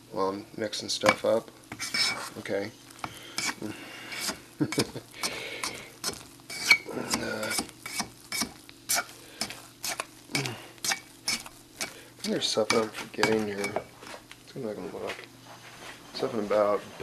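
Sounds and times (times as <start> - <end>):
wet batter stirring: 1.0 - 14.4
fork scraping a bowl: 1.7 - 2.4, 3.3 - 13.8.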